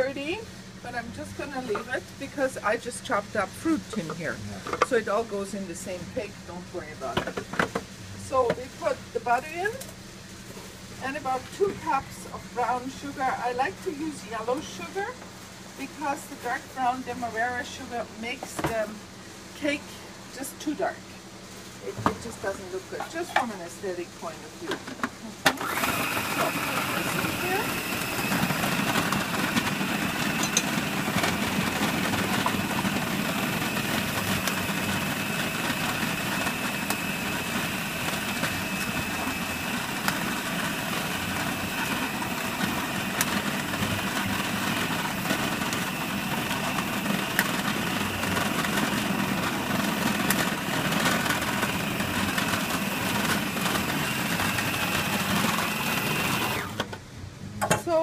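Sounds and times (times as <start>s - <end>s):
food processor motor running: 25.0s - 57.0s.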